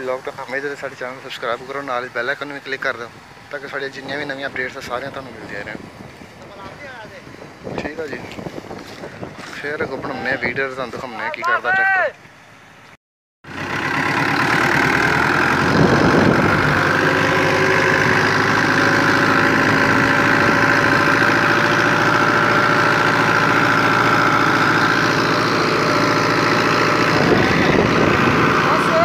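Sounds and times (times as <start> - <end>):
tractor diesel engine running: 0.0 - 10.4, 13.4 - 29.0.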